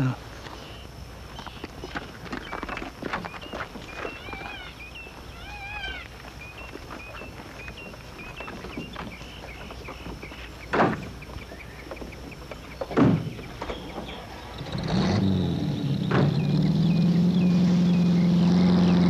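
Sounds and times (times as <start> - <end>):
birds chirping: 0.0 - 19.0
car doors shutting: 15.9 - 16.8.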